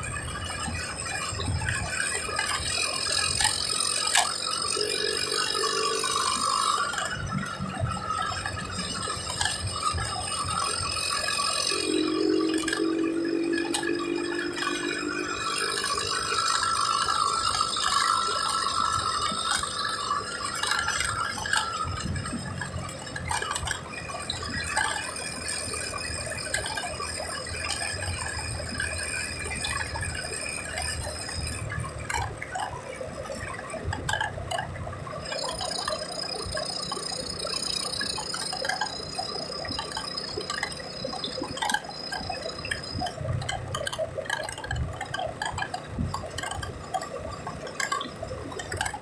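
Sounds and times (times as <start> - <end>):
road and engine noise: 0.0 - 49.0
loose parts rattling: 32.0 - 49.0.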